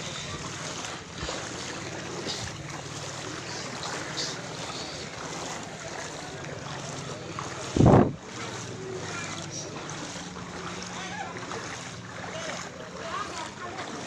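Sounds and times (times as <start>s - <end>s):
floodwater sloshing and rushing: 0.0s - 14.0s
wading splashes: 0.0s - 14.0s.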